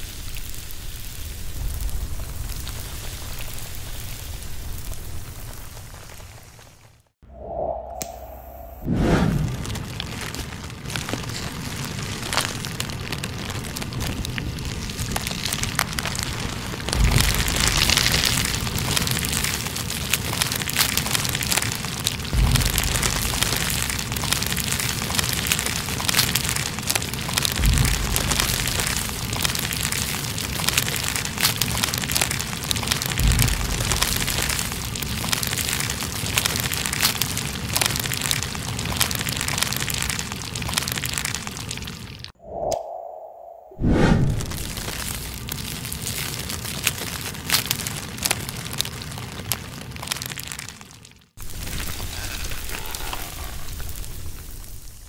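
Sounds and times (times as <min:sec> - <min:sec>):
bristles crackling in flame: 0:00.0 - 0:42.4, 0:43.8 - 0:55.0
deep low thump: 0:16.9 - 0:18.6, 0:22.4 - 0:23.8, 0:27.6 - 0:29.1, 0:33.2 - 0:34.6.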